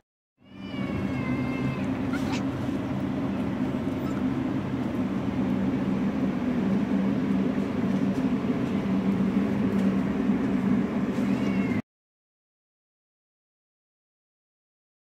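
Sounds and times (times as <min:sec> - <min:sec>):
low mechanical hum: 0:00.4 - 0:11.8.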